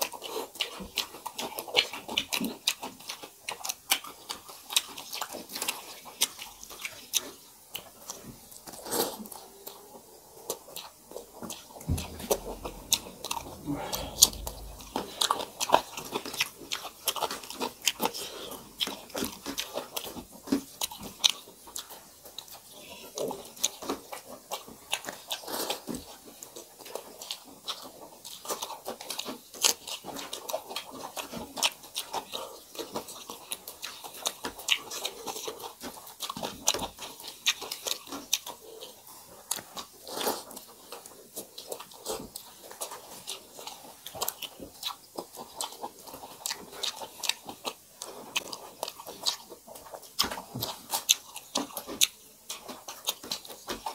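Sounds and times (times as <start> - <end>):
people chewing crunchy food: 0.0 - 53.9
wet mouth clicks: 10.5 - 18.2.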